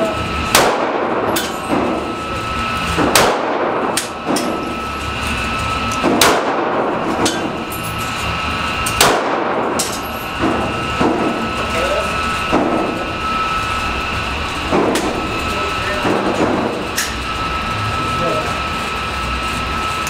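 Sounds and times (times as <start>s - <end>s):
pistol shots with echo: 0.5s - 1.8s, 3.0s - 3.9s, 6.0s - 6.9s, 9.0s - 9.8s.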